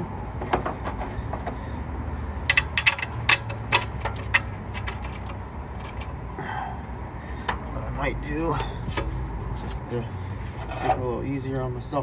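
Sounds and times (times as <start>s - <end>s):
metal clicks and clinks: 2.4s - 6.1s.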